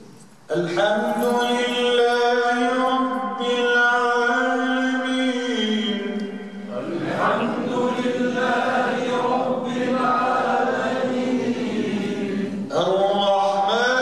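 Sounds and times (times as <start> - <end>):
man chanting through a microphone: 0.5 - 8.4, 12.5 - 14.0.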